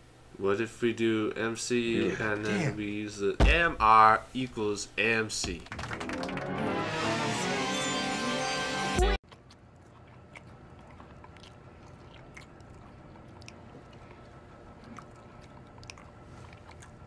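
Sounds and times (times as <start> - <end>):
man chewing: 9.2 - 17.0.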